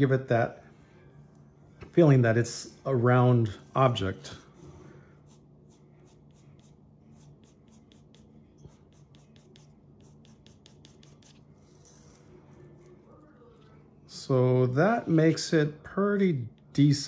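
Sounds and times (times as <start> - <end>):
pencil scratching on paper: 5.2 - 12.2.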